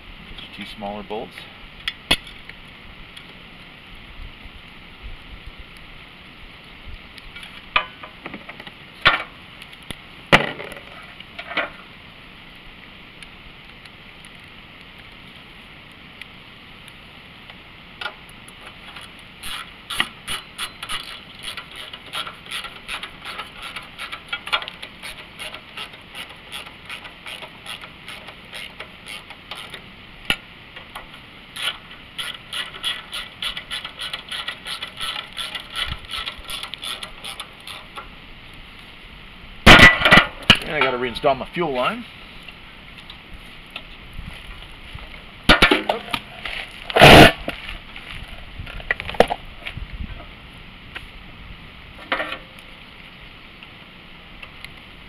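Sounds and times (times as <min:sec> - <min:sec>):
ratchet wrench clicking: 0:19.4 - 0:29.7.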